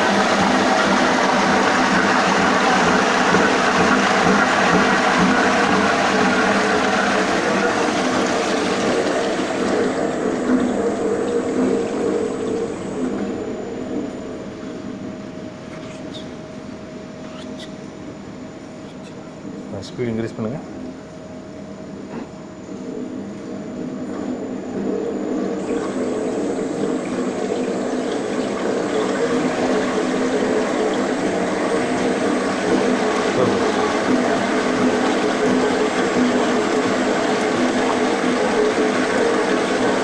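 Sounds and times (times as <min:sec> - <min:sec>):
mixer motor whirring: 0:00.0 - 0:16.3, 0:20.8 - 0:40.0.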